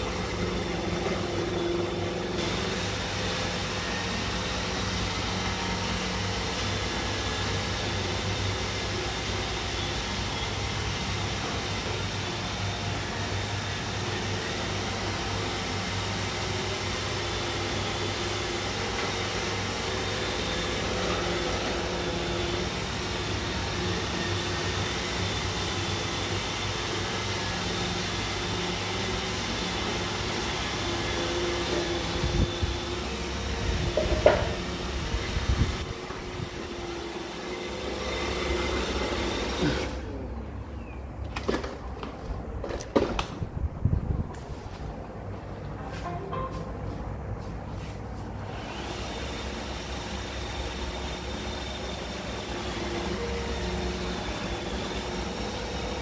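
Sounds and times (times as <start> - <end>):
robot vacuum motor whir: 15.4 - 40.0, 48.5 - 56.0.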